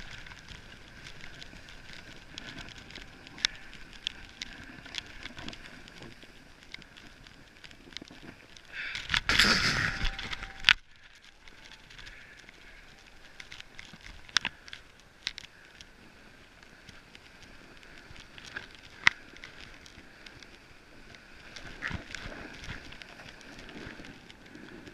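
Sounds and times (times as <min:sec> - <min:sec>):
snowboard scraping over snow: 0:09.2 - 0:10.6.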